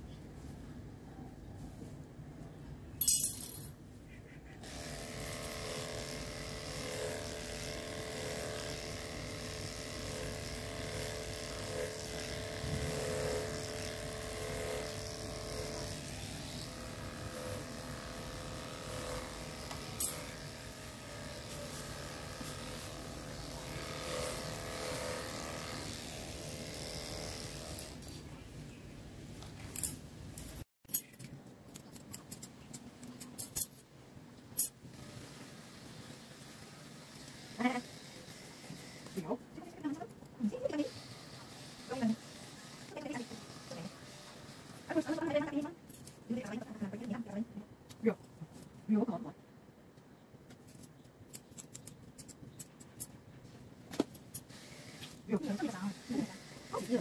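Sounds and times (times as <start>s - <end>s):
electric clipper buzzing: 4.6s - 28.2s, 35.0s - 39.4s, 40.6s - 45.5s, 54.5s - 57.0s.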